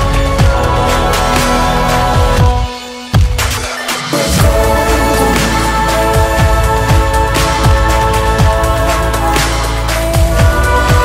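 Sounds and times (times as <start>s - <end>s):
bass: 0.0s - 11.0s
held synth chords: 4.0s - 9.8s
deep kick drum thumps: 4.4s - 8.8s.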